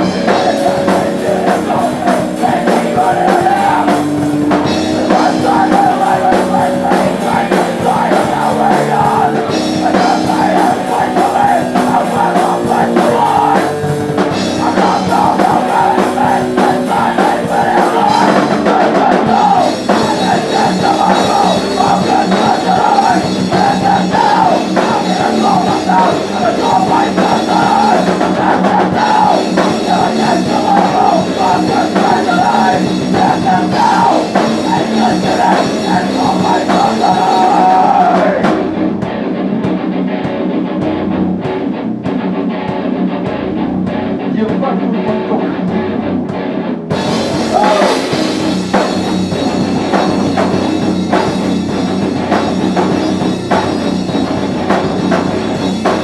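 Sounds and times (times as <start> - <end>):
rock band playing live: 0.0 - 56.0.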